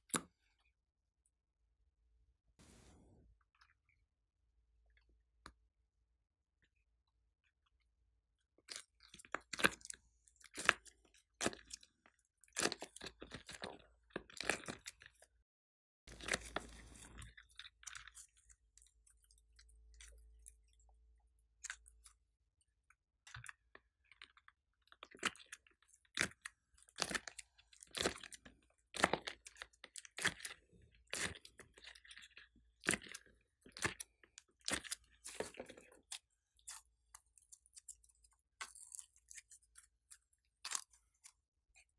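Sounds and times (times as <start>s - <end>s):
slime squelching: 8.6s - 15.3s, 16.1s - 22.2s, 23.4s - 41.9s.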